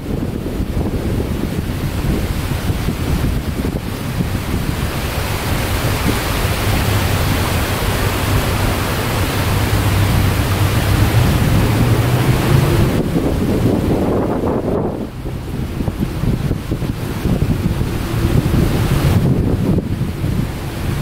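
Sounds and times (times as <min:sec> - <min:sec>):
choppy water: 0:00.0 - 0:21.0
wind buffeting microphone: 0:00.0 - 0:21.0.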